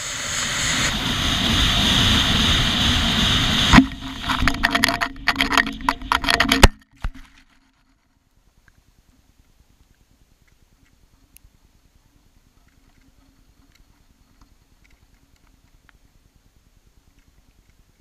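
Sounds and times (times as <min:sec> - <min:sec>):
air rushing over rocket: 0:00.0 - 0:04.7
gusty wind buffeting: 0:00.0 - 0:06.2
sharp crack: 0:00.0 - 0:07.3.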